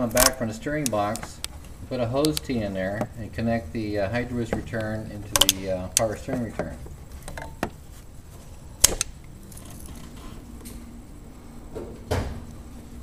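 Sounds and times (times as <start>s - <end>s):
faint steady hum: 0.0s - 13.0s
hose fittings and hand tools clicking: 4.5s - 7.6s.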